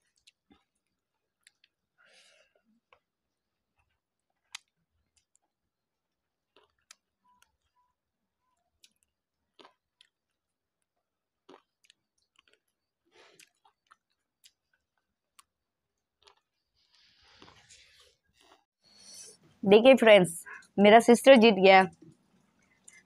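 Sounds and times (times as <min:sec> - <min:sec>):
people chewing: 0:11.4 - 0:15.6, 0:16.2 - 0:19.6, 0:21.9 - 0:23.0.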